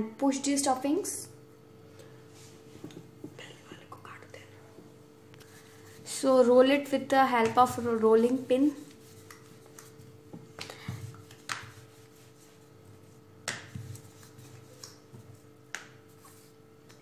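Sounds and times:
faint hum: 0.0 - 17.0
rolling pin rolling dough: 5.5 - 17.0.

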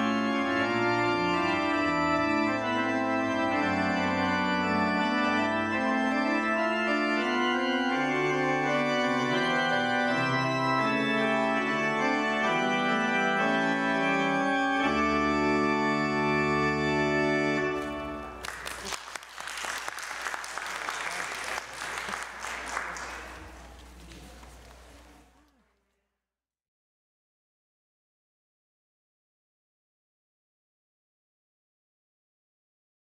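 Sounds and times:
organ playing chords: 0.0 - 24.0
applause: 18.2 - 25.3.

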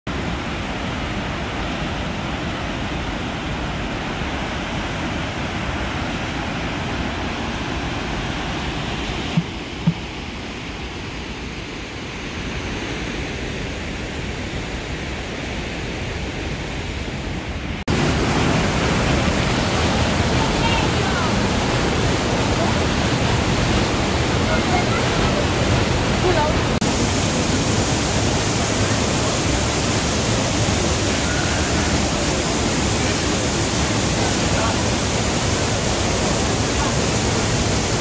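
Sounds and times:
waterfall rushing: 16.1 - 38.0.

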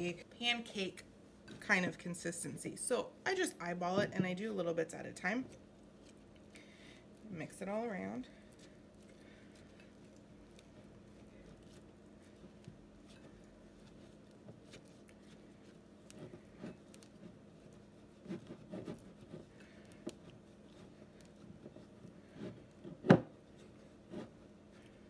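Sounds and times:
faint steady hum: 0.0 - 25.0
spatula stirring thick batter in jar: 5.2 - 25.0.

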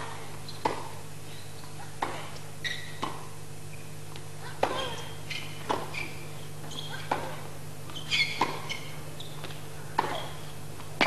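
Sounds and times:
tennis racket hitting ball: 0.0 - 1.0, 2.0 - 2.3, 4.5 - 6.0, 6.6 - 8.8, 9.5 - 11.0
tennis shoes squeaking on court: 0.0 - 11.0.

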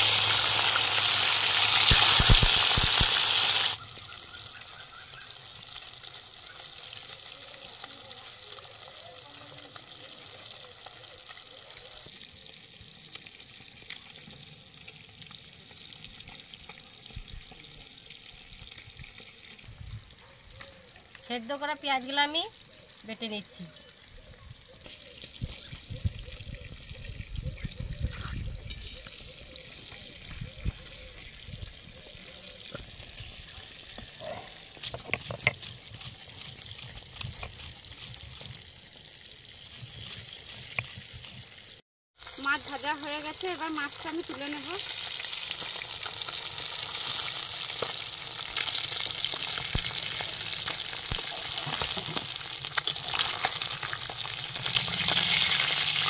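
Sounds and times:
fish frying in oil: 0.0 - 28.7, 29.3 - 56.0
stone pestle crushing and scraping: 34.0 - 38.7, 39.5 - 41.8.

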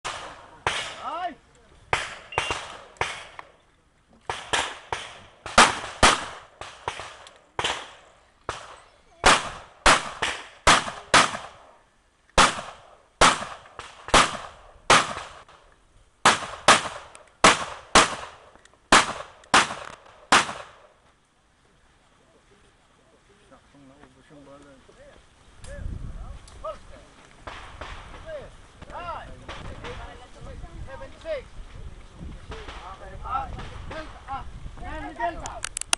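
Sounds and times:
handgun shots: 2.0 - 3.5.

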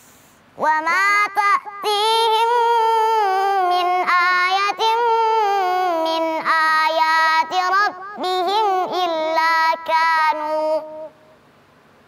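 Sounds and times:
girl chanting recitation: 0.6 - 11.3.

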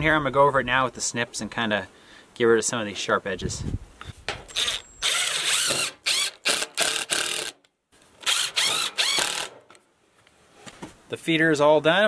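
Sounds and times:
impact driver rattling: 4.3 - 7.6, 8.2 - 9.7.

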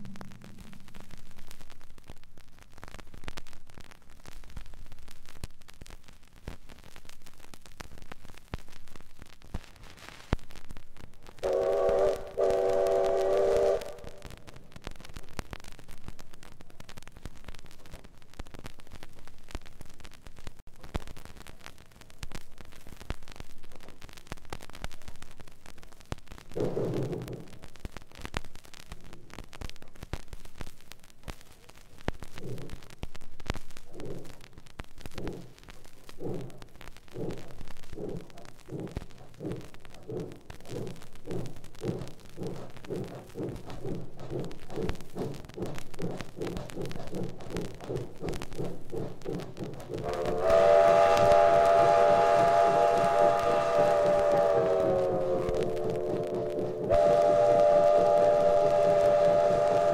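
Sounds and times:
steady steam hiss: 0.0 - 59.9
steam locomotive whistle: 11.4 - 14.3, 49.9 - 59.9.

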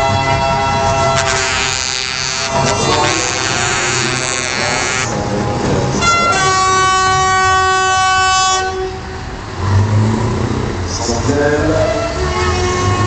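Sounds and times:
truck air horns blowing: 0.0 - 5.2, 6.0 - 9.3, 11.8 - 13.0
truck engine rumble: 0.0 - 13.0.

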